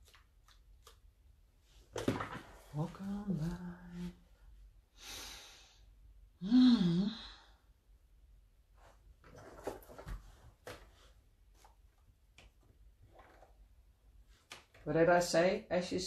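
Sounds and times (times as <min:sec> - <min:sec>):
woman sighing: 0:06.4 - 0:07.6.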